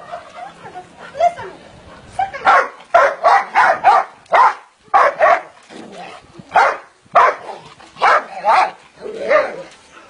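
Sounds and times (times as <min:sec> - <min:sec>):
dog barking: 0:02.4 - 0:05.5, 0:06.6 - 0:07.4, 0:08.0 - 0:08.7.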